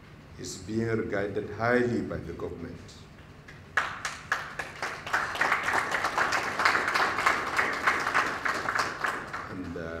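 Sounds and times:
audience applauding: 0:03.8 - 0:09.8.

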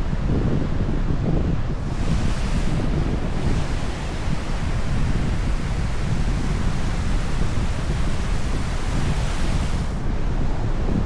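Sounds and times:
ocean surf on beach: 0:00.0 - 0:11.0
wind buffeting microphone: 0:00.0 - 0:11.0.

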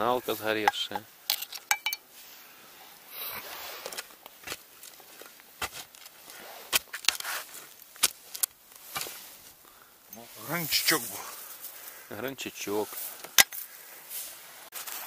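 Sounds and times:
digging clicks and knocks: 0:00.6 - 0:02.0, 0:03.9 - 0:09.2, 0:13.2 - 0:13.7.

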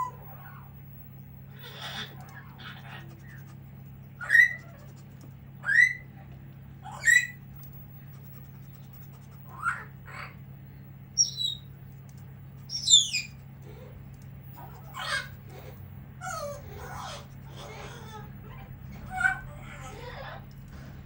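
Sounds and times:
parrots squawking: 0:00.0 - 0:00.6, 0:01.5 - 0:03.6, 0:04.2 - 0:06.2, 0:06.8 - 0:07.4, 0:08.0 - 0:10.4, 0:11.2 - 0:11.7, 0:12.6 - 0:20.8.

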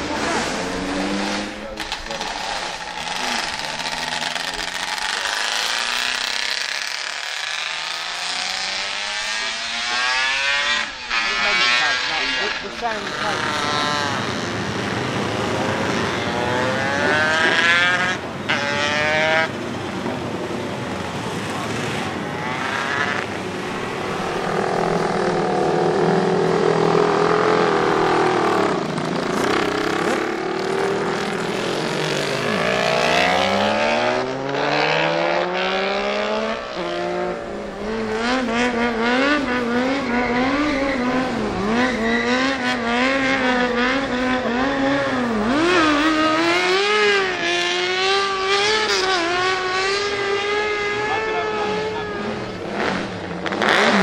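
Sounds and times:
stunt bike engine revving: 0:00.0 - 0:19.8, 0:21.2 - 0:54.0
motorcycle passing by: 0:00.0 - 0:54.0
racing motorcycle engines revving: 0:00.0 - 0:54.0
tyre squeal: 0:39.2 - 0:42.8.

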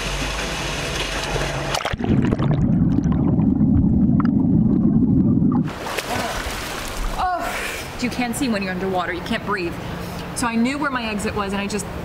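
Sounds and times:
muffled underwater rumble: 0:01.9 - 0:05.7
water rushing and splashing: 0:05.5 - 0:07.3.

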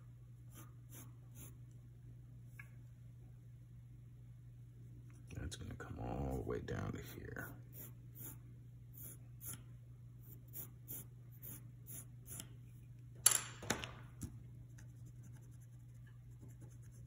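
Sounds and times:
pencil strokes on paper: 0:00.5 - 0:01.6, 0:06.2 - 0:08.4, 0:10.2 - 0:12.5.

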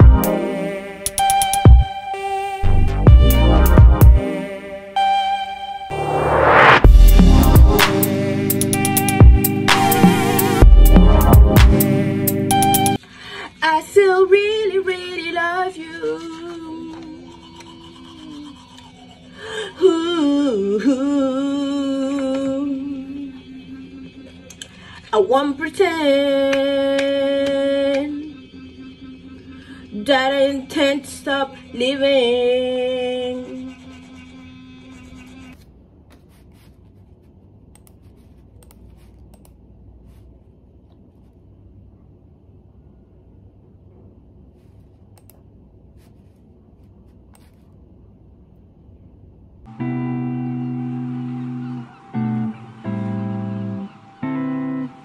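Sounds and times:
electronic music: 0:00.0 - 0:13.0, 0:49.7 - 0:55.0
low hum: 0:05.9 - 0:12.2
woman singing: 0:13.6 - 0:17.3, 0:19.6 - 0:24.0, 0:25.1 - 0:28.5, 0:29.8 - 0:33.8.

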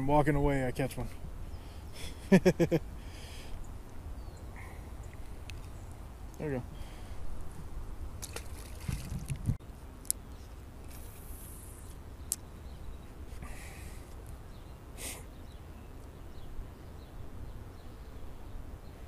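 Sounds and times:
wind rumbling on microphone: 0:05.1 - 0:09.6.

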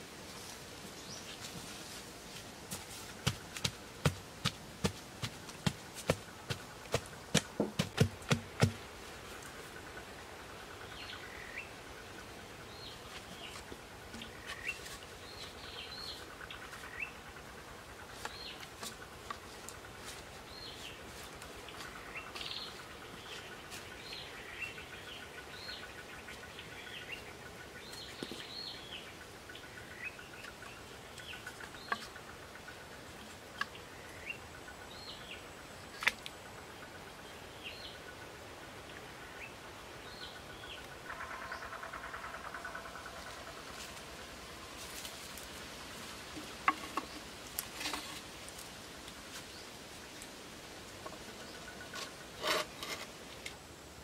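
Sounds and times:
birds calling: 0:02.8 - 0:48.2
stick knocking on bamboo post: 0:03.2 - 0:08.8, 0:46.4 - 0:47.2.

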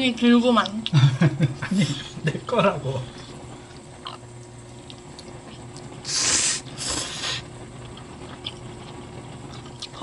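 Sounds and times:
person slurping noodles: 0:06.0 - 0:07.5.

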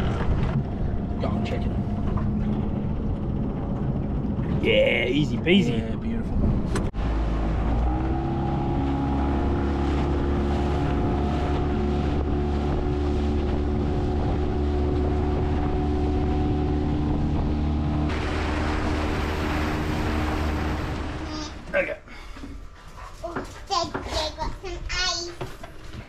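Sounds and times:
outboard motor running: 0:00.0 - 0:21.9
water rushing past hull: 0:00.0 - 0:22.0
wind on microphone: 0:05.3 - 0:21.3.

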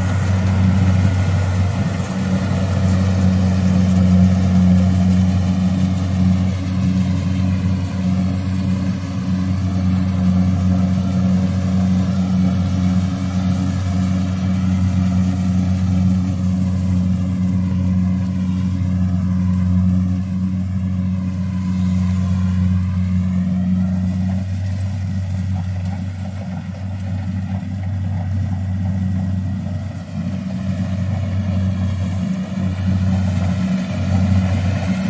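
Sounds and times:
diesel engine droning: 0:00.0 - 0:35.0
machinery rattling and hissing: 0:00.0 - 0:35.0.

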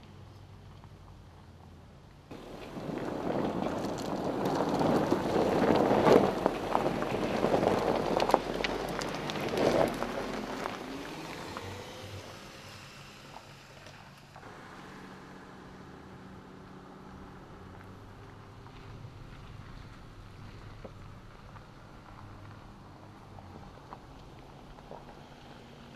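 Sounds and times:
stones popping under tread: 0:02.3 - 0:11.8
tyre crunching over gravel: 0:02.3 - 0:12.5.

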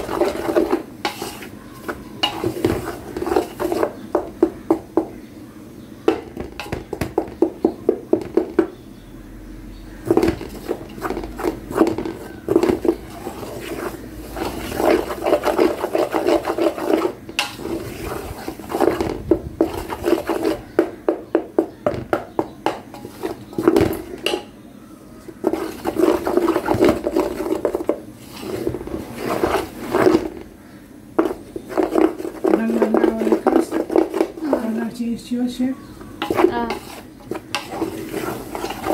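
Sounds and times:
spatula scraping flour in steel bowl: 0:00.0 - 0:04.8, 0:10.0 - 0:21.1, 0:22.4 - 0:24.4, 0:25.2 - 0:30.5, 0:31.2 - 0:35.0, 0:36.2 - 0:38.9.

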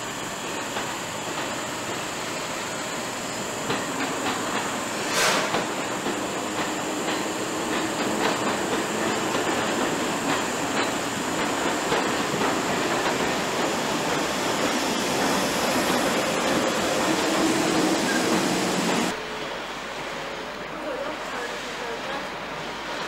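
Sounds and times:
train rumbling: 0:00.0 - 0:23.0
train wheels clicking over joints: 0:00.5 - 0:02.3, 0:03.3 - 0:19.2.

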